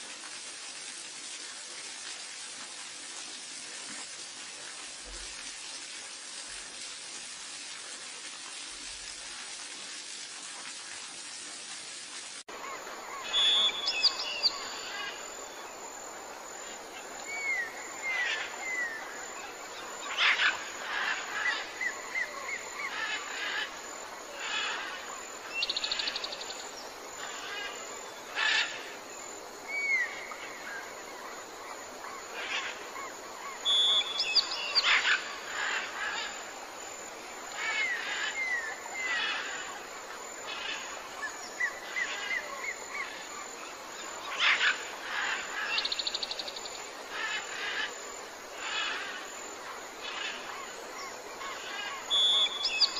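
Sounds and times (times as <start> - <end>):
faint steady hiss: 0.0 - 52.9
wild birdsong: 12.5 - 52.9.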